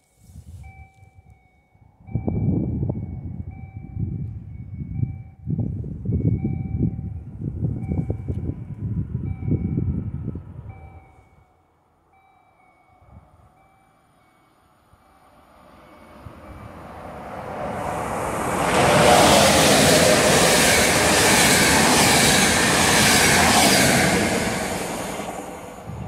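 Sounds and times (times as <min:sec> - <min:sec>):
train passing at speed: 0:01.4 - 0:11.2, 0:11.9 - 0:26.0.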